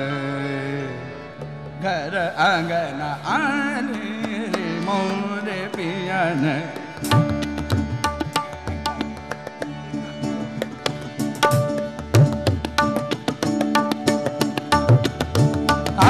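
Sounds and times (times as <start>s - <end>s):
man singing fast ornamented runs: 0.0s - 9.6s
tabla stroke: 4.0s - 16.0s.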